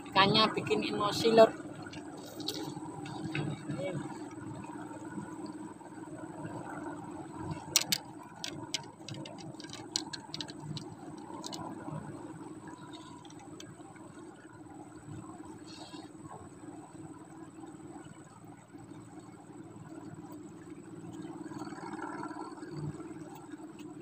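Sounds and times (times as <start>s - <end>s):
sharp irregular clicks: 7.6s - 11.7s.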